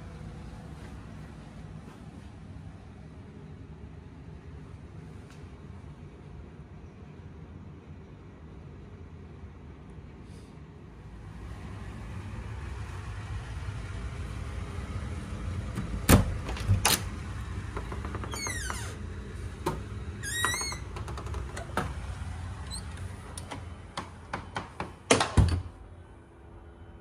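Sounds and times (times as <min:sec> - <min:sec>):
steady low hum: 0:00.0 - 0:27.0
knocks and clunks: 0:22.9 - 0:25.7.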